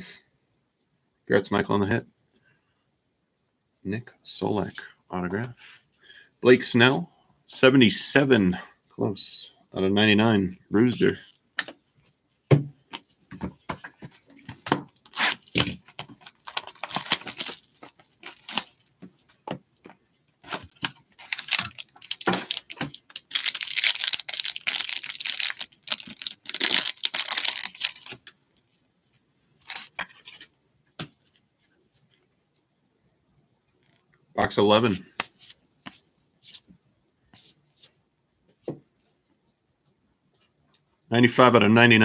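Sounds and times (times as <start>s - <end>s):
plastic wrapper crinkling: 15.0s - 19.0s, 20.4s - 28.4s, 29.6s - 30.5s.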